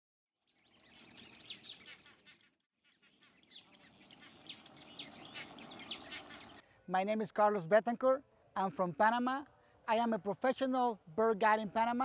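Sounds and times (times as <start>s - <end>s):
birds chirping and whistling: 0.5s - 6.6s.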